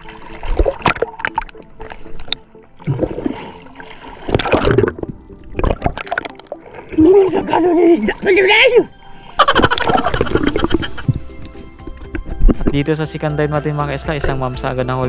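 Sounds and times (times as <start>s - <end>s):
water bubbling: 0.0s - 8.7s, 9.4s - 12.8s
seawater splashing and gurgling: 0.0s - 12.8s.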